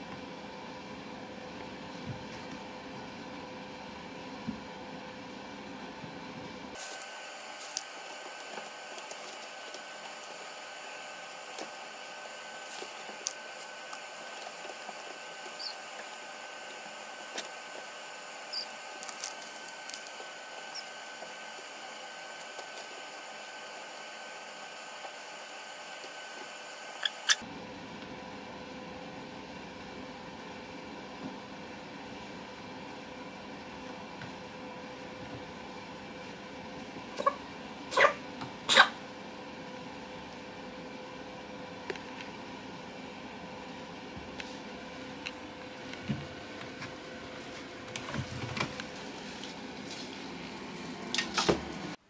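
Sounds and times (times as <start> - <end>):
small clicks and scratches: 18.5 - 21.8.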